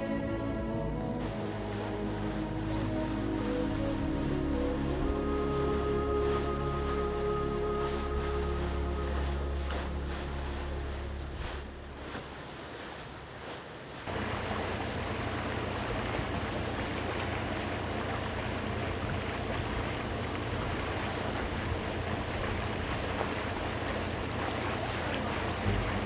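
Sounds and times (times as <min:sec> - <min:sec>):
low rumble: 0:00.0 - 0:12.8, 0:14.1 - 0:26.0
water washing along a hull: 0:00.0 - 0:26.0
wind on microphone: 0:19.0 - 0:26.0.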